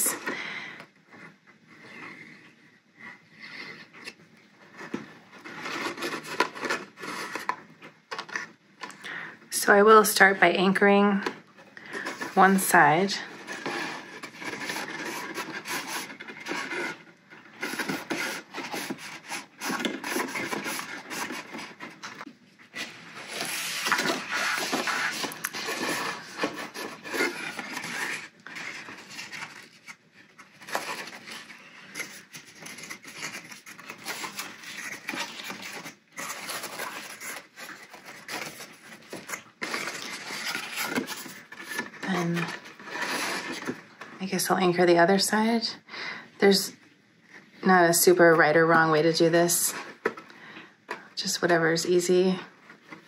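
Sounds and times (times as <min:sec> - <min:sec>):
cardstock rustling and scraping: 0:03.4 - 0:08.5, 0:11.2 - 0:44.1.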